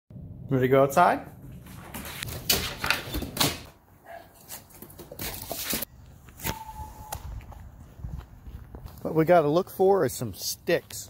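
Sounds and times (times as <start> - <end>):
short steady tone: 6.4 - 7.4.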